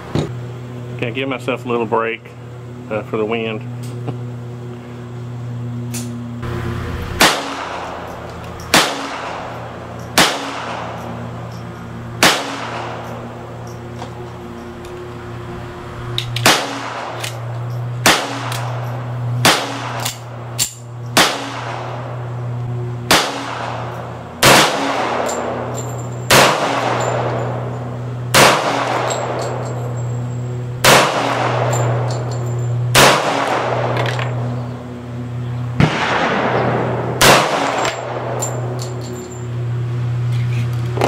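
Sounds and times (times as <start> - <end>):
pistol shots: 7.2 - 11.2, 12.2 - 13.2, 16.4 - 22.2, 23.0 - 25.7, 26.3 - 27.7, 28.3 - 29.7, 30.8 - 32.2, 32.9 - 34.4, 35.8 - 38.8
faint distant gunshots: 35.8 - 38.2.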